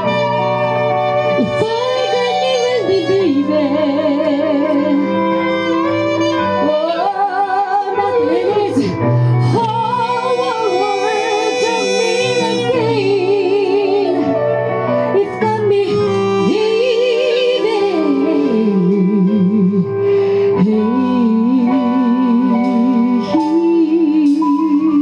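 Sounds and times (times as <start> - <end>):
electric guitar: 0.0 - 25.0
keyboard: 0.0 - 25.0
woman singing soul ballad: 1.3 - 5.4, 6.3 - 25.0
saxophones: 4.8 - 15.0.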